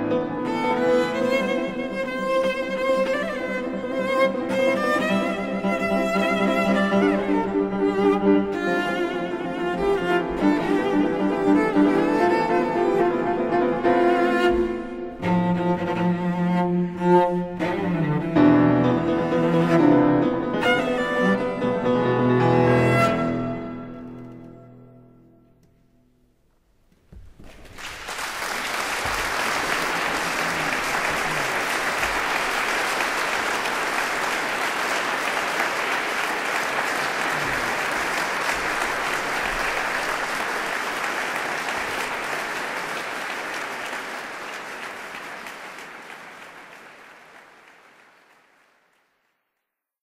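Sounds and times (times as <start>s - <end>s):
concert audience applauding: 27.2s - 49.6s.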